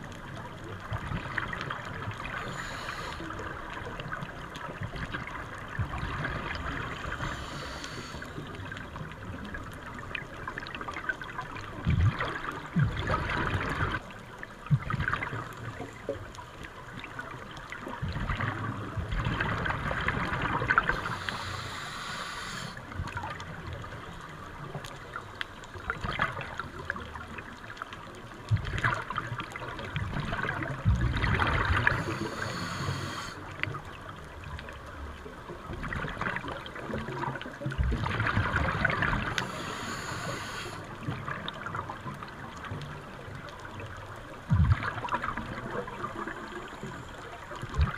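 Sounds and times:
underwater exhaled bubbles: 0.0 - 47.9
regulator hiss: 2.4 - 3.3, 7.1 - 8.4, 21.0 - 22.8, 31.9 - 33.4, 39.4 - 40.8.

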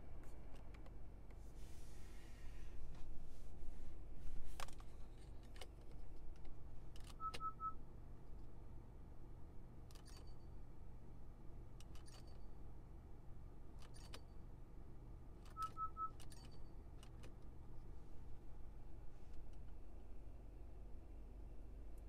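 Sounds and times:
low steady hum: 0.0 - 22.0
dial clicks: 4.6 - 7.7, 15.4 - 17.5
quick beeps: 7.1 - 7.8, 15.5 - 16.6.

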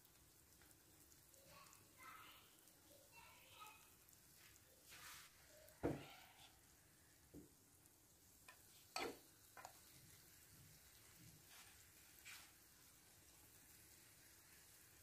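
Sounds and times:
food frying in oil: 0.0 - 15.0
fork clinking and scraping pan: 8.5 - 9.8.

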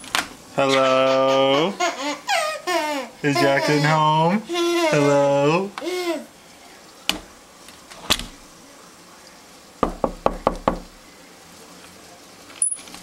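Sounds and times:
knocking on a door: 9.8 - 11.0.

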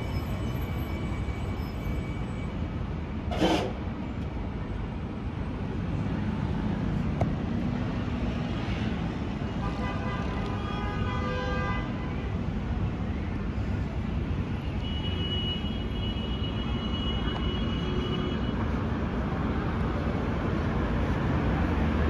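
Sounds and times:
tram rumbling at platform: 0.0 - 9.6, 16.7 - 22.0.

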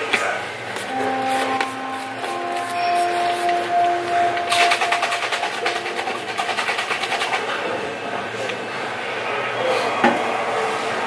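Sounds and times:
plastic shaker bottle rattling: 4.5 - 7.5.

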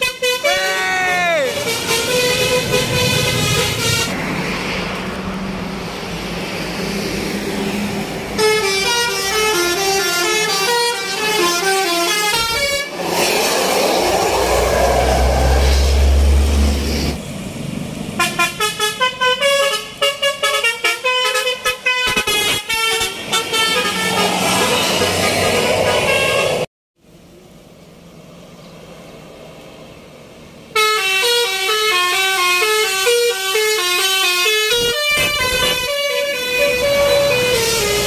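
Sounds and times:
musical air horns playing melodies: 0.0 - 4.2, 8.4 - 13.0, 18.2 - 26.7, 30.8 - 38.0
bus engine rumbling: 0.0 - 38.0.

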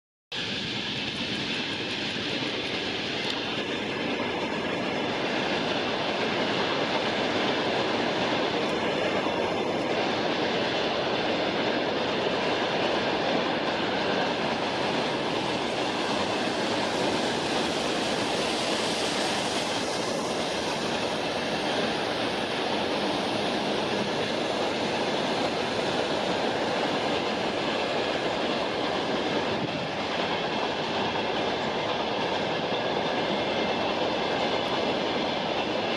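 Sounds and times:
steady rushing noise: 0.4 - 35.9.

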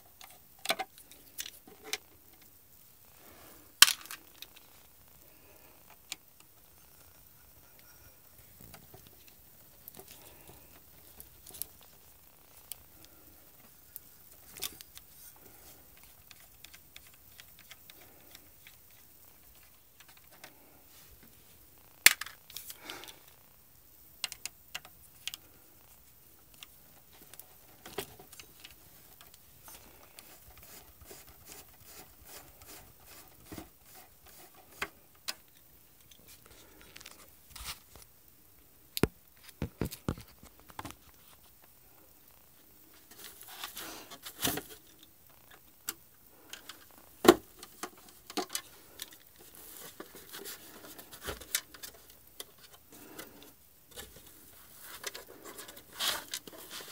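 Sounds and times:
rustling scrape: 27.1 - 34.8, 42.8 - 44.9, 48.0 - 56.9.

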